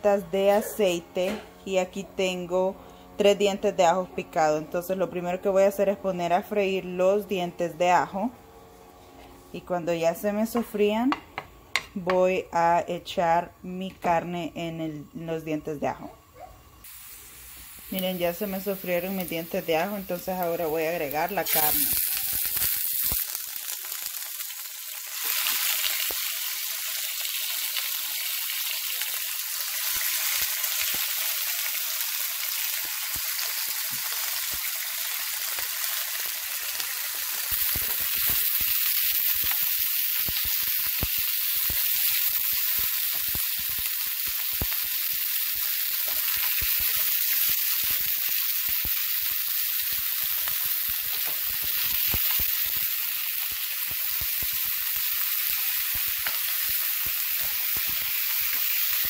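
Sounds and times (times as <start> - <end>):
meat sizzling in a frying pan: 16.8 - 59.0.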